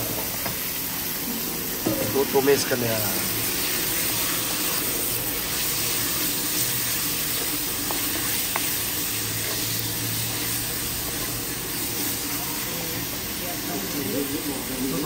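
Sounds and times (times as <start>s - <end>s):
meat sizzling in hot oil: 0.0s - 15.0s
wooden spoon stirring: 3.7s - 12.4s.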